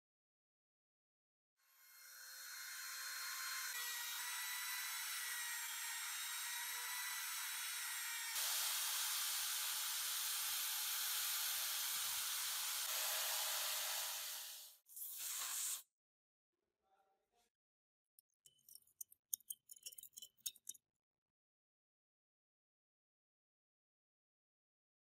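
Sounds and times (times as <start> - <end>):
rotary tool grinding metal: 1.7 - 15.2, 18.4 - 20.8.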